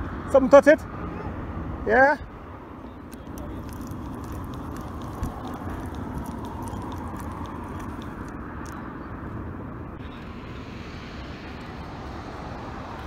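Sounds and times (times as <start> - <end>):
low rumble of road traffic: 0.0 - 13.0.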